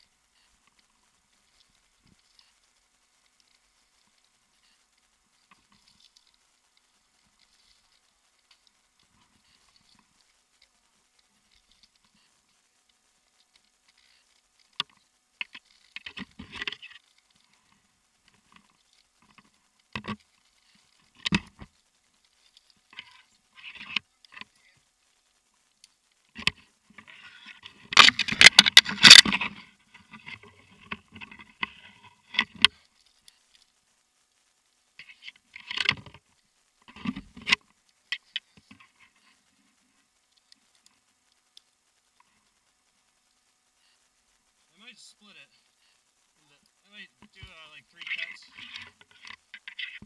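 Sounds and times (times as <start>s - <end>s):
hands and boots against bark: 0.0s - 33.8s, 35.0s - 50.0s
leaves rustling: 0.0s - 50.0s
climbing hardware clicking: 25.8s - 33.8s.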